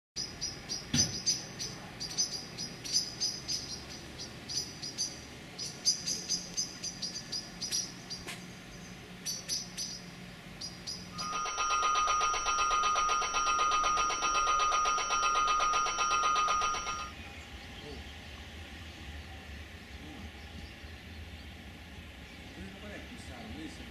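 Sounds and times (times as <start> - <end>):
small birds chirping: 0.2 - 11.5
electric bell ringing: 11.1 - 17.1.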